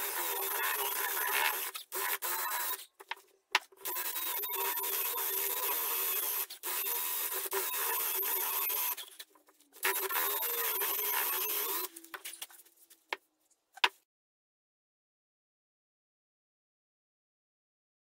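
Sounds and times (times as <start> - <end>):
drill motor whine: 0.0 - 2.9, 3.8 - 9.1, 9.8 - 12.0.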